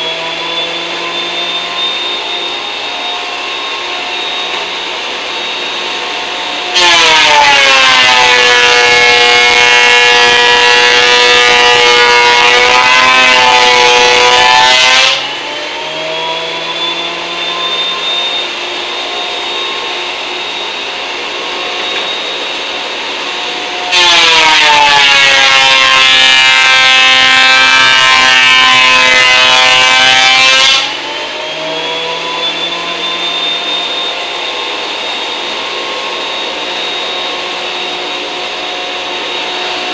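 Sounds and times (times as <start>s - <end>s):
planer motor whine: 0.0s - 39.9s
thickness planer planing wood: 6.5s - 18.0s.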